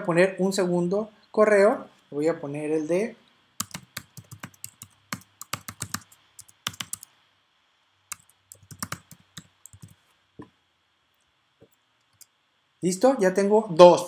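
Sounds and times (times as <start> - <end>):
typing on computer keyboard: 3.6 - 7.1, 8.1 - 10.0.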